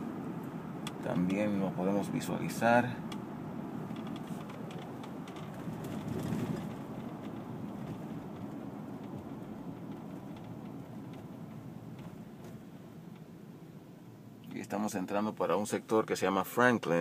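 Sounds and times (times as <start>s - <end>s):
car road noise: 0.0s - 17.0s.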